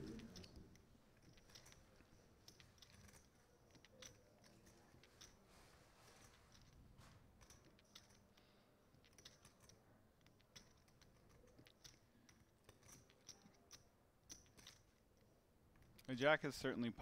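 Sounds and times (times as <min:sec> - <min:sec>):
faint irregular clicks: 0:00.0 - 0:16.3.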